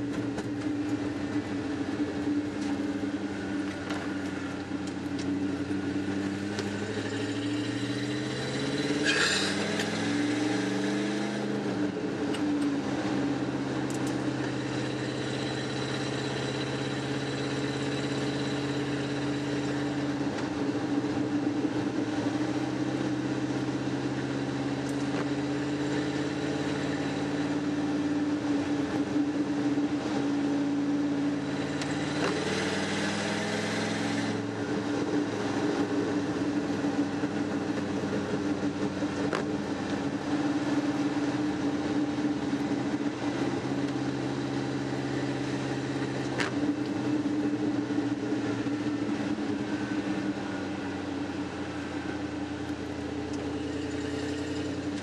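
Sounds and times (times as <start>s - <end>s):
truck engine from inside cab: 0.0s - 55.0s.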